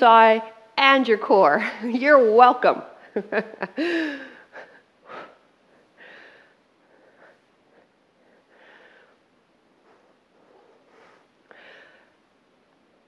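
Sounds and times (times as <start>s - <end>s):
woman breathing heavily: 3.6s - 12.5s.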